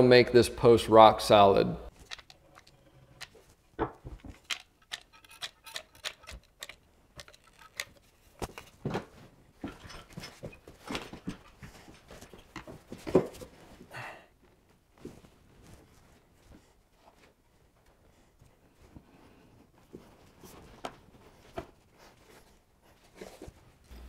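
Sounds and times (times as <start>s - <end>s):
tools and wood knocking: 2.0s - 13.4s.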